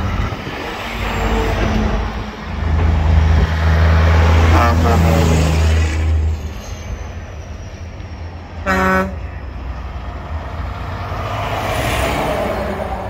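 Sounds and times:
traffic noise: 0.0 - 13.0
truck engines rumbling past: 0.0 - 13.0
truck horn blast: 4.4 - 5.7, 8.6 - 9.3.

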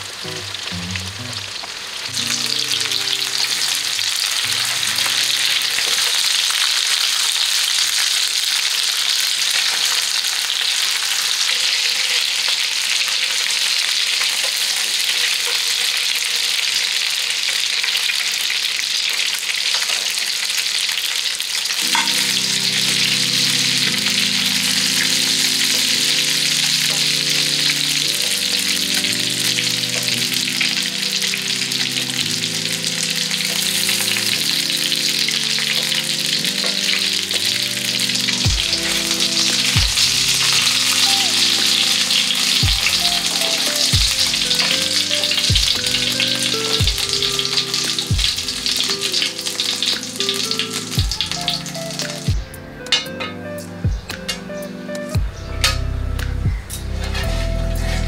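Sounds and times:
hot oil sizzling: 0.0 - 58.0
background music with low beat: 0.1 - 1.5, 38.4 - 41.0, 42.6 - 49.0, 51.0 - 58.0.

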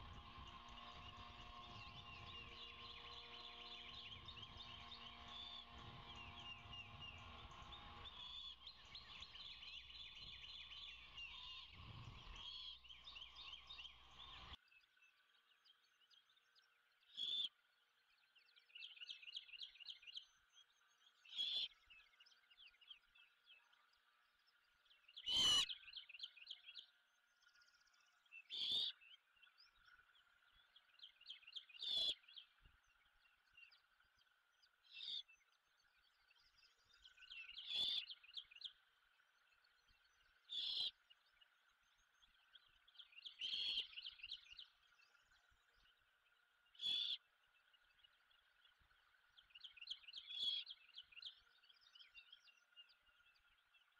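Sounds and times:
background hiss and hum: 0.0 - 14.6
small birds trilling: 0.0 - 14.6, 24.5 - 26.9, 27.5 - 53.9.

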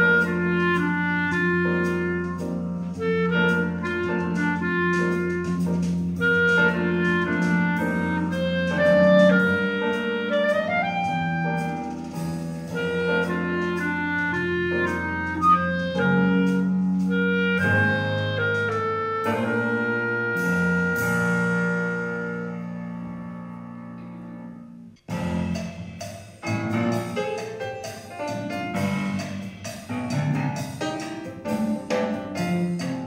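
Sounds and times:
clarinet melody: 0.0 - 25.6
low accompaniment chords: 0.0 - 27.2.

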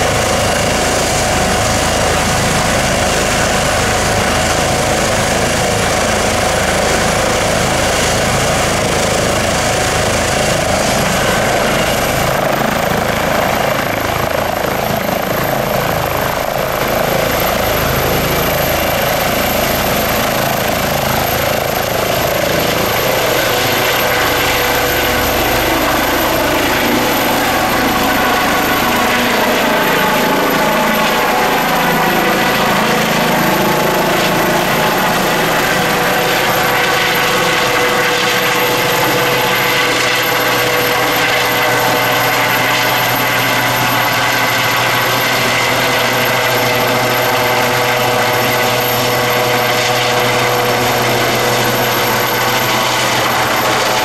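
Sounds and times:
helicopter rotors turning: 0.0 - 54.0
high turbine whine: 0.0 - 54.0.

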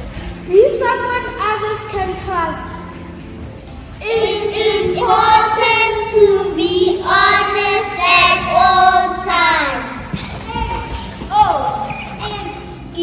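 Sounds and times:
children singing: 4.0 - 12.8.

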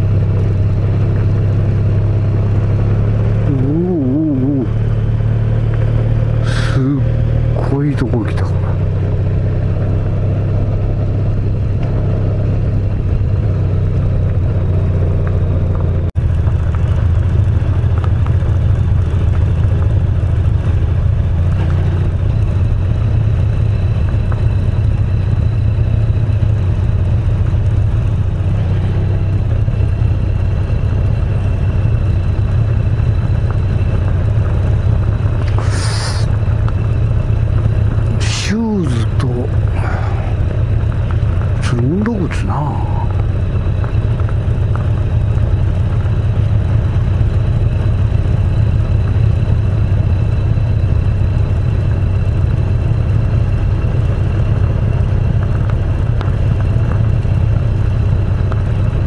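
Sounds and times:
motorcycle engine rumbling: 0.0 - 59.0
short hiss: 35.5 - 36.3.

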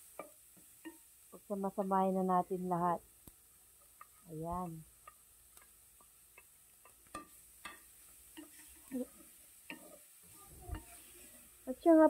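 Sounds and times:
faint sizzle: 0.0 - 12.0
wooden spatula scraping a pan: 5.6 - 12.0
wood knocking on pan: 6.3 - 8.6.

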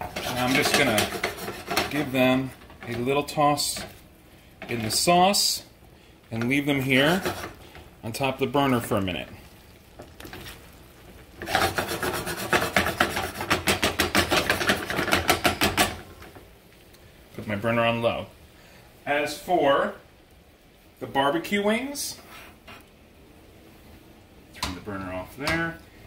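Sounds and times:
spatula scraping a skillet: 0.0 - 4.0, 6.4 - 7.9, 9.9 - 16.0, 22.2 - 22.9.

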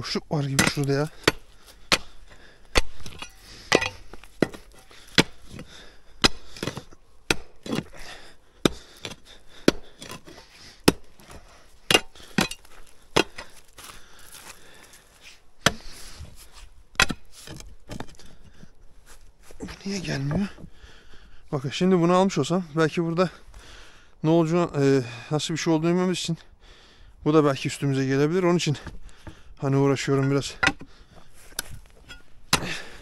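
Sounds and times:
digging tool striking stone: 0.0 - 13.8, 15.6 - 16.0, 16.9 - 18.3, 30.0 - 33.0.

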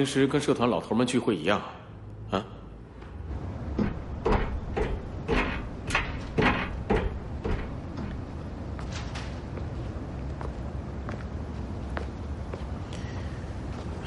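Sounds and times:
low outdoor rumble: 2.0 - 14.0
footsteps on metal stairs: 3.0 - 11.3.

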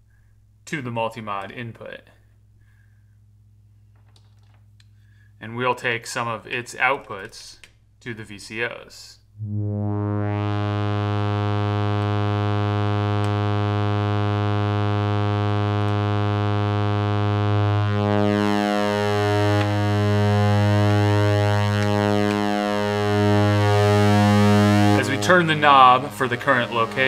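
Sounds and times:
low synthesizer drone: 9.3 - 27.0.

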